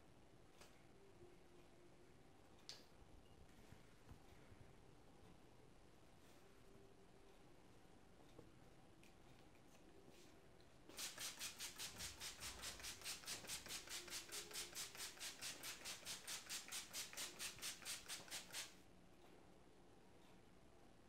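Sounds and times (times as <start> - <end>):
spray bottle squirts: 10.9 - 18.8.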